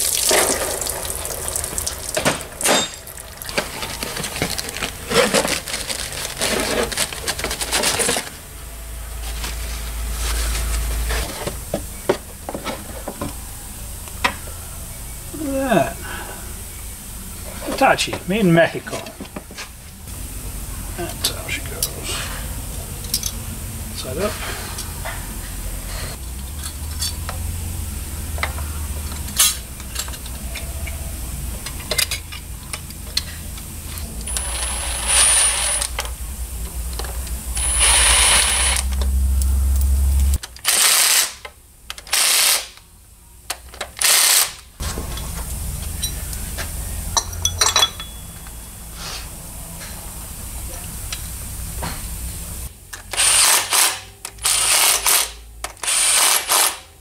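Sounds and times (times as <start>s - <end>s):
low hum: 0.0s - 17.7s, 35.9s - 40.4s
tools clinking: 2.2s - 4.5s, 47.2s - 48.6s
cordless power tool driving bolts: 40.6s - 42.8s, 43.9s - 44.6s, 53.0s - 56.9s.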